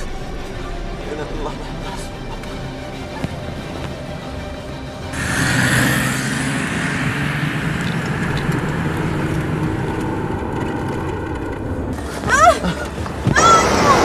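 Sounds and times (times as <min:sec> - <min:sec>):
suv engine running: 0:00.0 - 0:13.2
tyre and road noise: 0:05.1 - 0:14.0.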